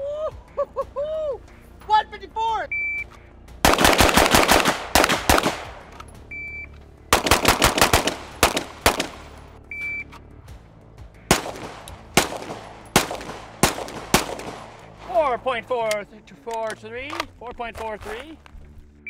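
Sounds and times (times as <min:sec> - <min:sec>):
shot timer beep: 0:02.7 - 0:03.1, 0:06.3 - 0:06.7, 0:09.7 - 0:10.1
rapid pistol fire: 0:03.6 - 0:05.9, 0:07.1 - 0:09.5, 0:11.3 - 0:15.1.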